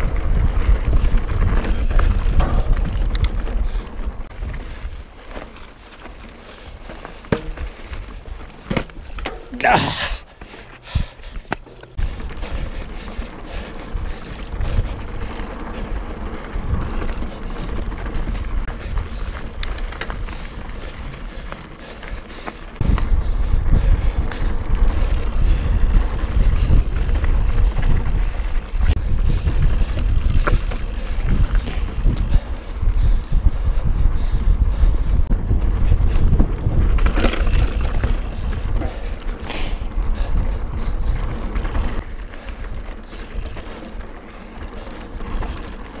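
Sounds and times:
wind on microphone: 0.0s - 5.2s, 12.0s - 43.6s
bike tyre rumble: 0.0s - 46.0s
bike knocks and clicks: 0.5s - 4.2s, 7.0s - 9.6s, 24.2s - 32.4s, 35.4s - 40.0s, 44.6s - 46.0s.

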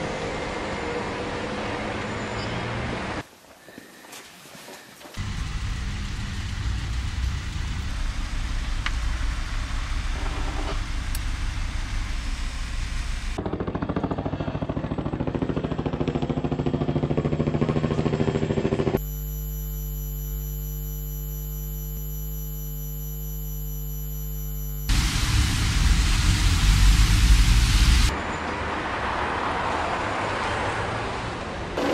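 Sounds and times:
engine-like low rumble with hiss: 5.2s - 13.4s, 24.9s - 28.1s
steady hum with fixed tones: 19.0s - 25.2s.

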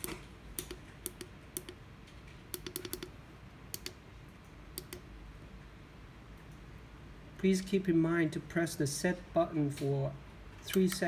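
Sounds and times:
push buttons clicking: 2.5s - 3.1s.

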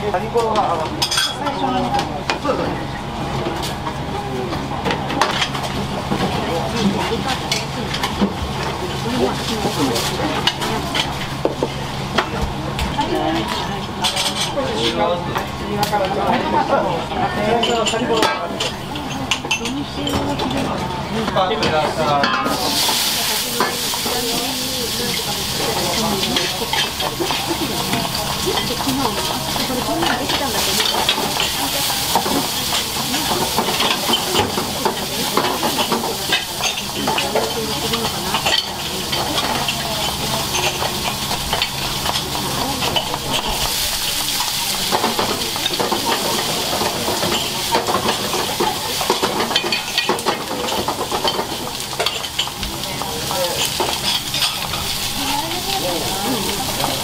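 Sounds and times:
food sizzling in frying pans: 0.0s - 57.0s
utensils clinking against pans: 0.1s - 57.0s.

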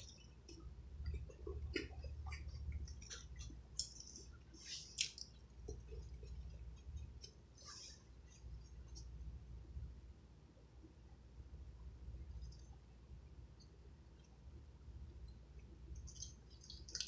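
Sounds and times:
chewing toast: 0.0s - 7.5s, 16.0s - 17.0s
wet mouth smacks: 3.0s - 4.2s, 4.9s - 5.3s.

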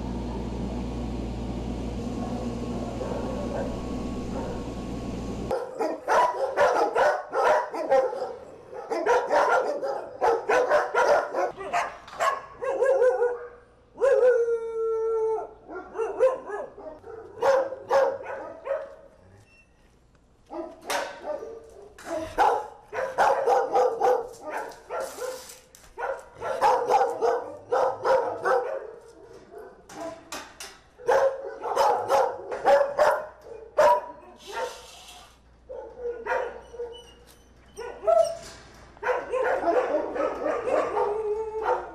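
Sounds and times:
dogs barking: 2.1s - 4.8s, 5.5s - 14.6s, 15.6s - 19.1s, 20.5s - 30.3s, 31.0s - 34.8s, 35.6s - 37.2s, 37.8s - 38.4s, 39.0s - 41.9s
dog howling: 14.0s - 15.6s, 39.3s - 41.9s.

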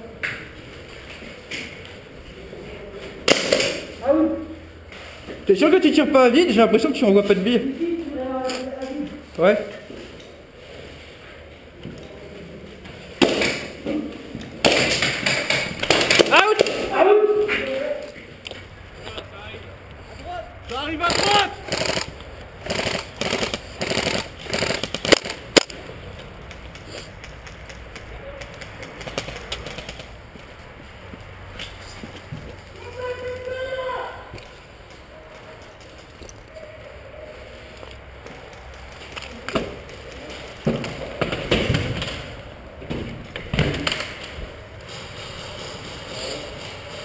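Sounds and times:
airsoft gun shots: 3.3s - 3.9s.

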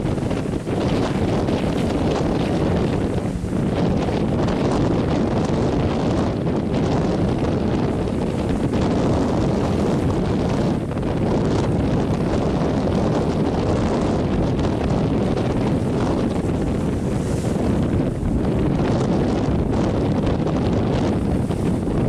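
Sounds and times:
breaking surf: 0.0s - 22.0s
wind buffeting microphone: 0.0s - 22.0s.

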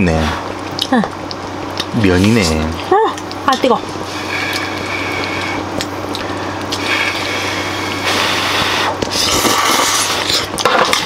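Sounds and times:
steady low hum: 0.0s - 11.0s
wet noodle broth sounds: 0.3s - 11.0s.

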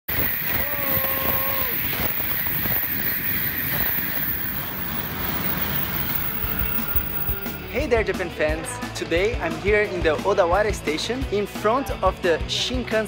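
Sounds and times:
brief steady tone: 1.5s - 7.8s
train passing at speed: 2.2s - 8.0s.

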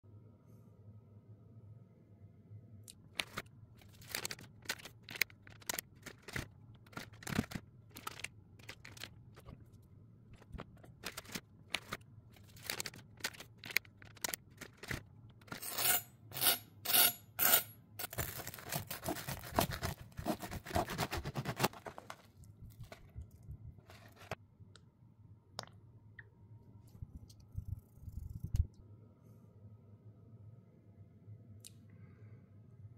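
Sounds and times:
knife sawing through crusty bread: 15.6s - 22.0s.

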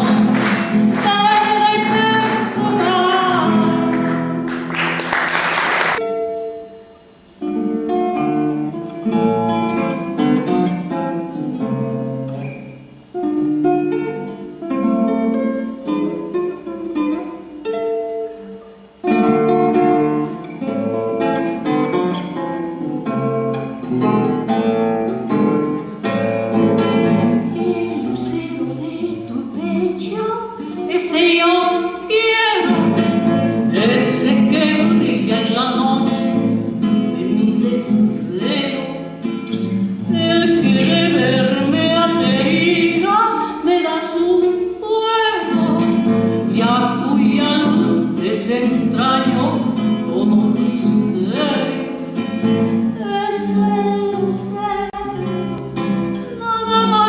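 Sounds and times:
woman singing: 0.0s - 4.3s, 27.4s - 39.0s, 40.1s - 52.0s, 53.0s - 55.6s, 56.3s - 57.0s
classical guitar: 0.0s - 57.0s.

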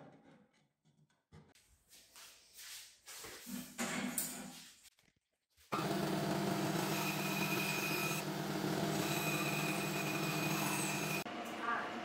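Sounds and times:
bandsaw cutting wood: 5.7s - 11.3s.

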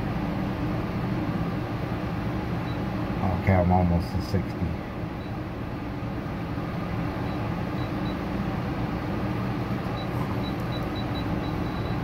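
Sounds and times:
machine hum and hiss: 0.0s - 12.0s
faint high-pitched beeps: 10.0s - 12.0s.

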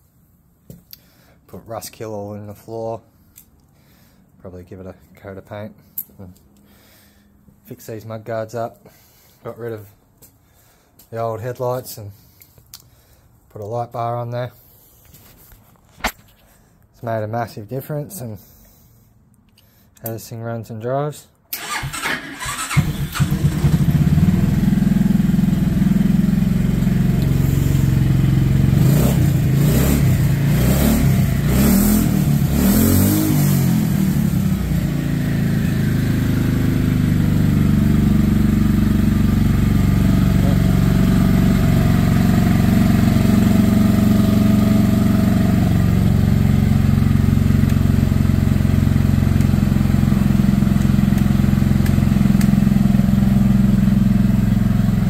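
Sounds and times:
buggy engine revving and idling: 21.6s - 55.0s.

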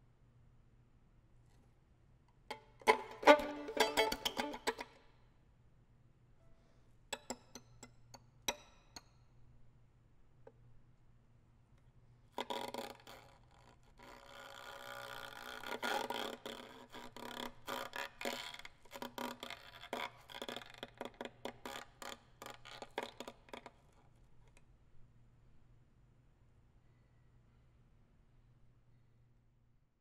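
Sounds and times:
solo violin playing: 2.8s - 4.8s.

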